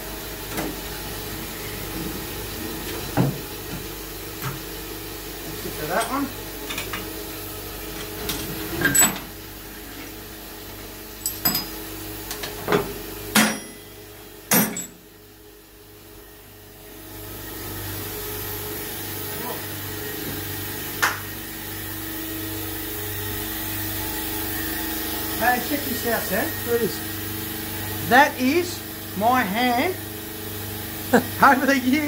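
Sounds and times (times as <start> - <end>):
machinery humming: 17.2 - 32.0.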